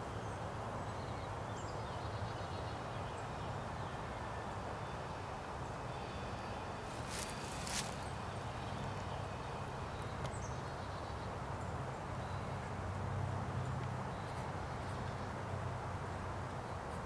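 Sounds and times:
soft hiss: 0.0s - 12.6s.

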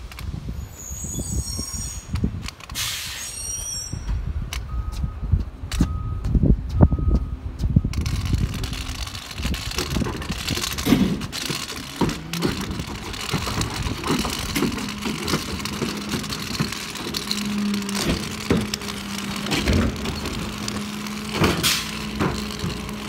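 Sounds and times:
truck engine running: 4.7s - 23.0s
scattered knocks: 8.0s - 23.0s.

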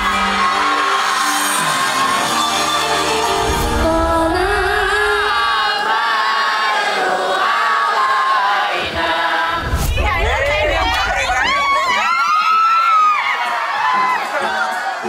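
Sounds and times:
music: 0.0s - 11.5s
crowd singing together: 0.0s - 11.9s
crowd noise: 0.0s - 15.0s.

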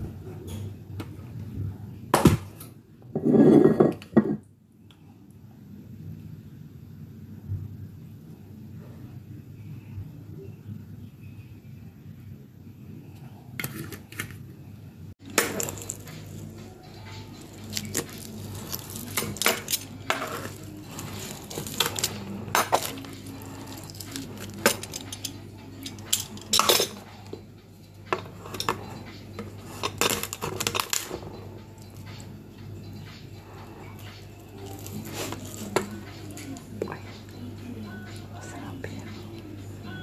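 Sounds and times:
steady low hum: 0.0s - 40.0s
cutlery clinking on metal tray: 15.2s - 16.5s, 17.1s - 27.3s, 28.1s - 31.2s.

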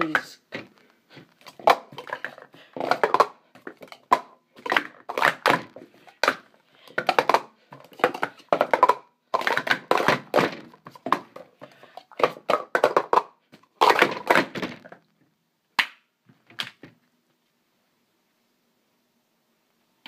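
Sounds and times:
plastic cups clattering: 0.0s - 15.1s.

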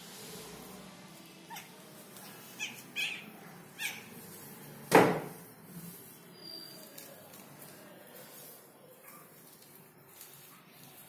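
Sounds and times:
puppies squeaking: 1.5s - 4.3s, 6.3s - 6.9s.

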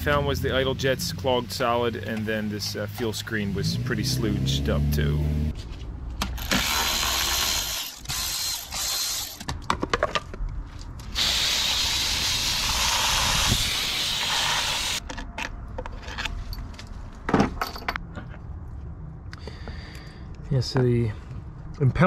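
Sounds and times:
ratchet clicking: 6.4s - 9.4s
hose spraying water: 11.2s - 15.0s.

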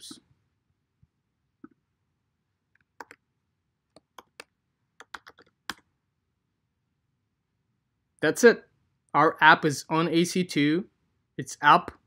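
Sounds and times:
keyboard keys clicking: 5.0s - 5.8s.

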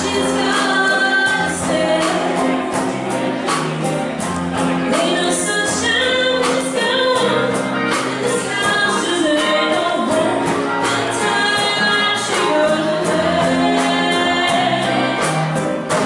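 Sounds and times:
woman singing into a microphone: 0.0s - 3.0s, 4.8s - 15.6s
big band playing live: 0.0s - 16.0s.

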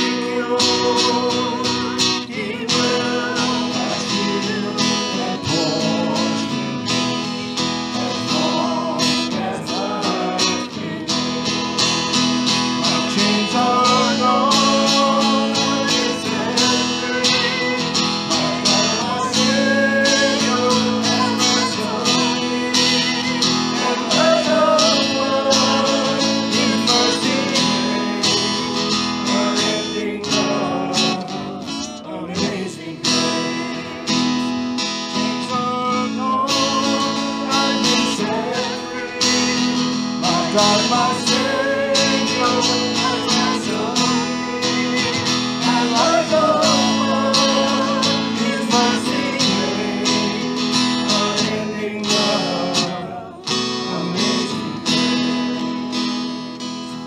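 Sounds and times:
person singing: 0.0s - 56.2s
strummed acoustic guitar: 0.0s - 57.0s.

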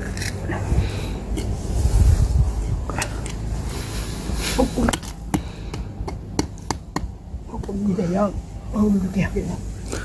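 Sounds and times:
low microphone rumble: 0.4s - 4.8s.

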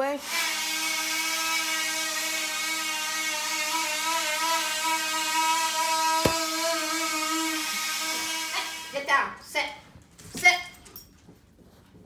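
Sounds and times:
sharp knock: 6.2s - 6.5s.

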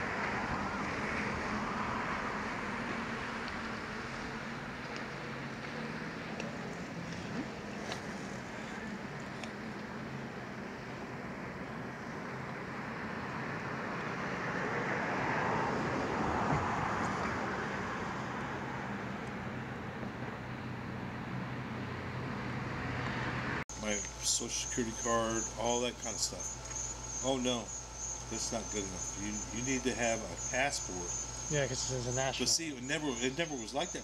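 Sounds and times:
boat engine humming: 0.0s - 14.4s, 23.7s - 34.0s.

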